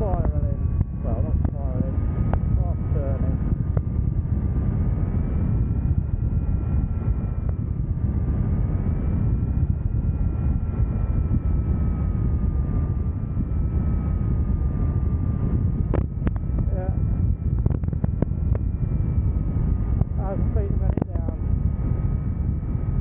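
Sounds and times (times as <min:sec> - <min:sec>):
wind rushing over microphone: 0:00.0 - 0:23.0.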